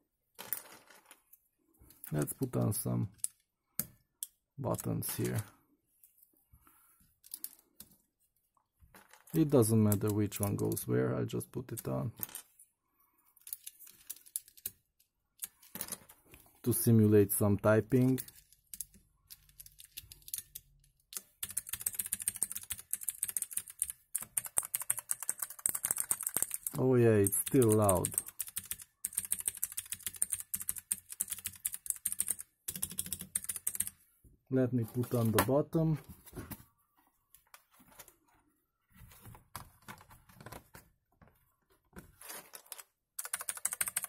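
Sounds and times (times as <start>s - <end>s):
mechanical keyboard typing: 21.2s - 33.9s, 43.2s - 44.0s.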